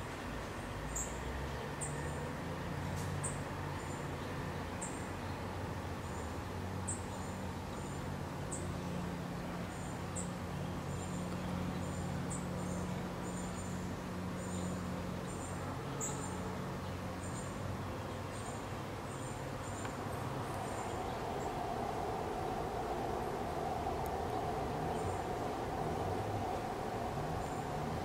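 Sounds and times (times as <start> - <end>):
steady low hum: 7.3 - 28.0
insects chirping: 19.1 - 28.0.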